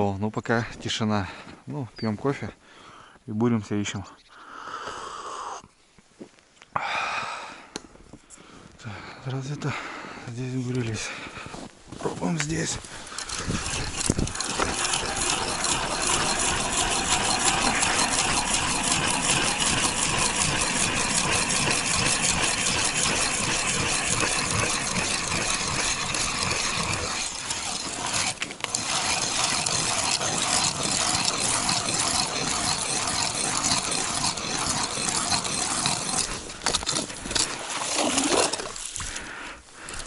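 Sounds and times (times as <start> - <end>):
ice auger grinding through ice: 11.1 - 40.0.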